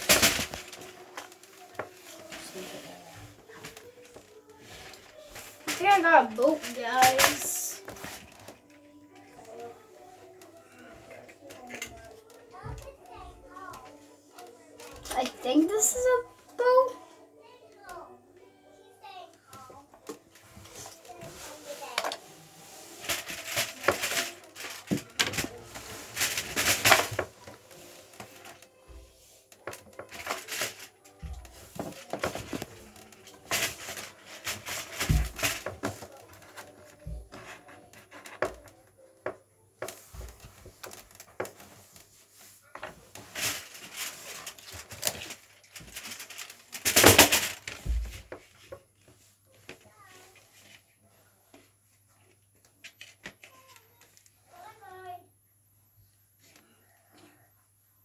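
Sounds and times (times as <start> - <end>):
cardboard rustling and crinkling: 0.0 - 10.0, 20.0 - 38.8, 39.8 - 50.8.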